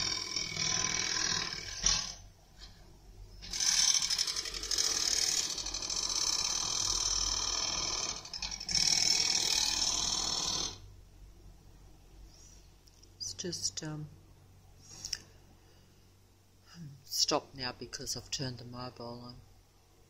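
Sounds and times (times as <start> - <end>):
loud rapidly pulsing buzz: 0.0 - 2.2.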